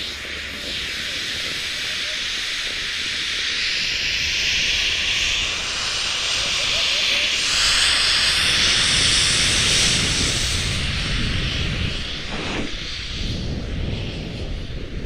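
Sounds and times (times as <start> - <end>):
skis hissing and scraping on snow: 6.7 - 15.0
wind rushing over microphone: 7.4 - 15.0.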